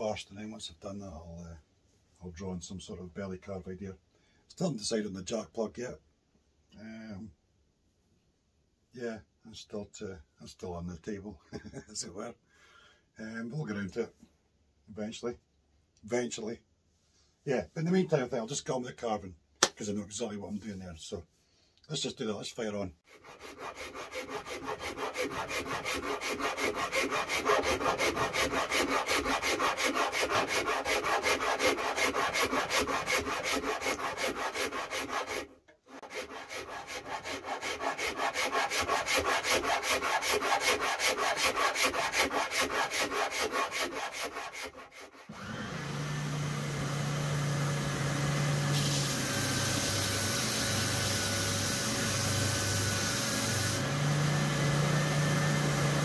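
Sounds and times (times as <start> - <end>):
rasp scraping wood: 23.1 - 45.4
wood hissing against sanding belt: 23.2 - 45.3, 47.6 - 56.0
spindle sander running: 45.3 - 56.0.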